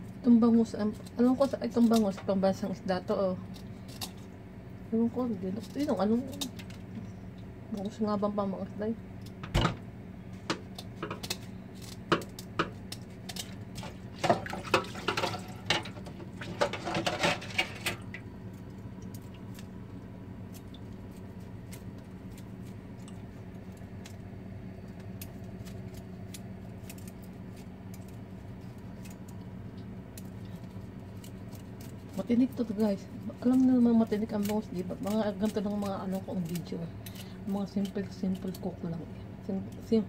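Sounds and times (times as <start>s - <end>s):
steady low hum: 0.0s - 40.0s.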